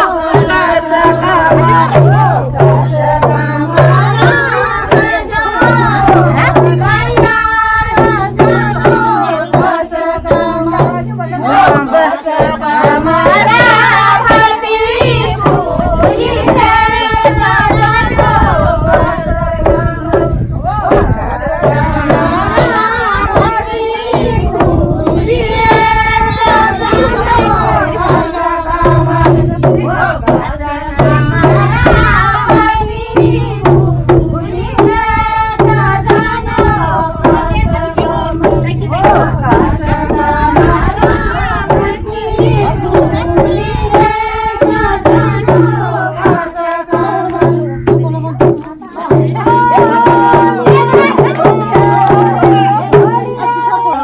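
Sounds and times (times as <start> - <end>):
hand drum beats: 0.0 - 54.0
voices singing folk song: 0.0 - 54.0.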